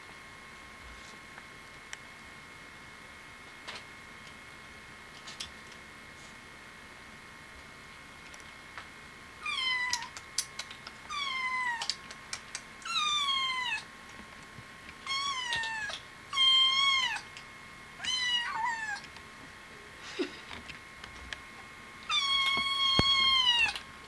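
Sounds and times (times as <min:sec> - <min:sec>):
kitten meowing: 0:09.4 - 0:10.2, 0:15.0 - 0:17.3, 0:18.0 - 0:19.0, 0:22.1 - 0:23.8.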